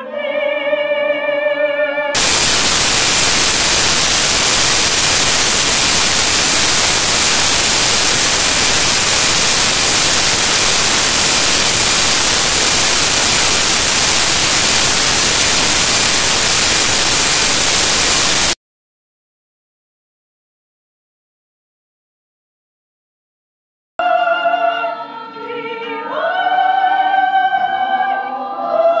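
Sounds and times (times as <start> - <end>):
loud static hiss: 2.2 - 18.6.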